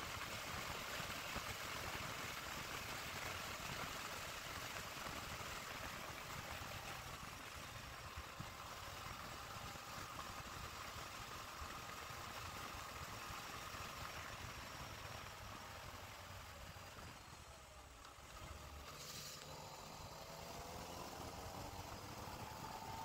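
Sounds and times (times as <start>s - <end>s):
wind and road noise: 0.0s - 23.0s
motorcycle engine: 5.8s - 23.0s.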